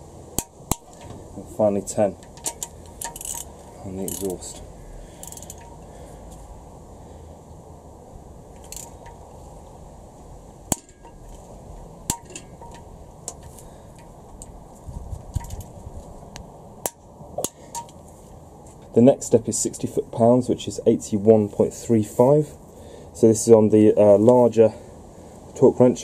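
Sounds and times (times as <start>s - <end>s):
sharp wrench clicks: 2.2s - 4.4s, 5.2s - 5.8s, 8.6s - 9.2s
torque wrench metallic clicks: 2.2s - 4.6s, 5.2s - 5.8s, 8.6s - 9.2s.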